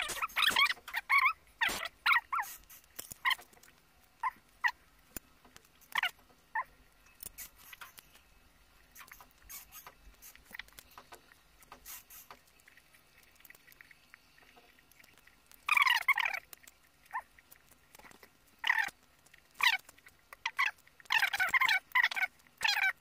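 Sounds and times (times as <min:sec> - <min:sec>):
short squeaky sounds: 0:00.0 - 0:03.4, 0:09.0 - 0:10.6
chewing with wet mouth clicks: 0:08.9 - 0:22.9.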